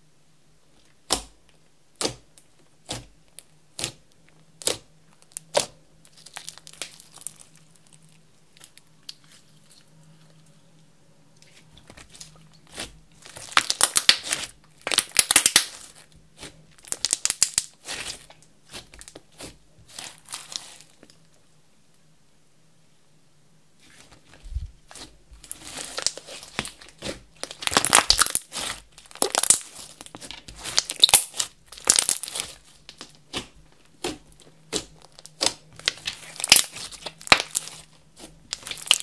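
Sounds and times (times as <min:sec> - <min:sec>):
slime popping and crackling: 0:04.6 - 0:08.7, 0:12.0 - 0:21.0, 0:24.9 - 0:39.0.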